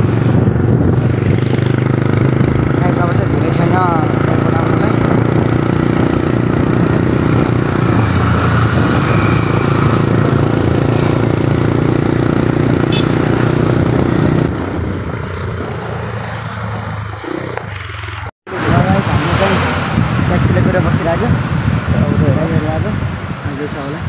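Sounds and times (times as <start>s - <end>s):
wind rushing over microphone: 0.0s - 24.0s
motorcycle engine running: 0.8s - 18.3s.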